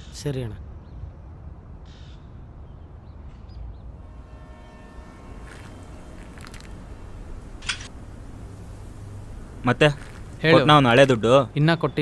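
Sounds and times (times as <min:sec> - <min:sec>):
low outdoor rumble: 0:03.0 - 0:12.0.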